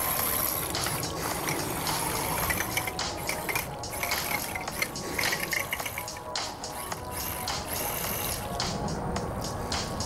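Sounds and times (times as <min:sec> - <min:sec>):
paddle wheels churning water: 0:00.0 - 0:06.4.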